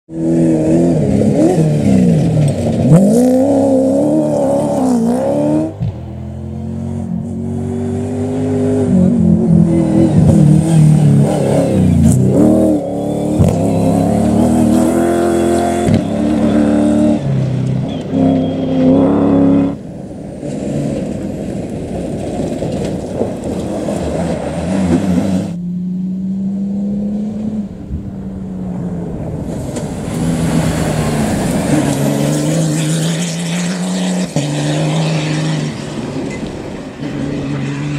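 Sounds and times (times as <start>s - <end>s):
rally cars racing past: 0.1s - 37.9s.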